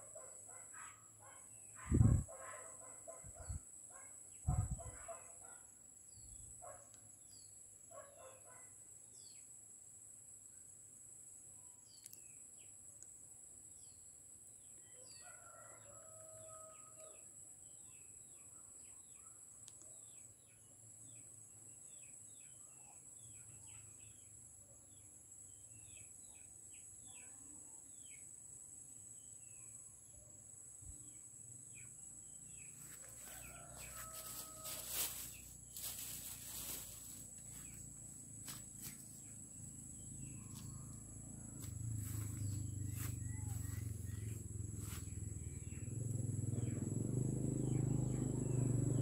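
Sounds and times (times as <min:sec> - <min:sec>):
insects buzzing: 0:24.0 - 0:49.0
rustling and handling noise: 0:32.8 - 0:39.3
rooster crowing: 0:33.0 - 0:35.1
small birds chirping: 0:42.0 - 0:45.9.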